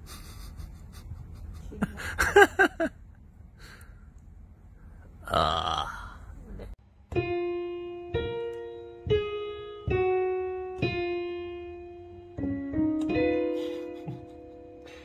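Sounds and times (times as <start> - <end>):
digital piano notes: 7.1 - 15.0.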